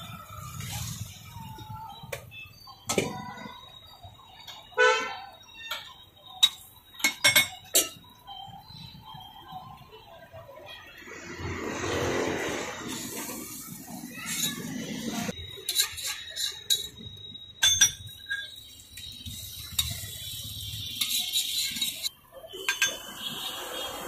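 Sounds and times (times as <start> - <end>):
metal spatula scraping a griddle: 12.4 - 16.9, 19.3 - 22.1
sharp metallic clinks: 14.2 - 23.2.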